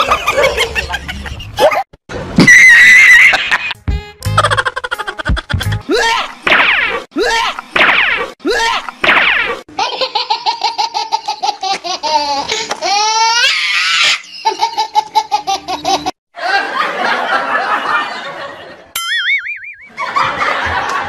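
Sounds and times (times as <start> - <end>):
hearty belly laughter: 0.0 - 1.9, 4.4 - 5.8, 19.9 - 21.0.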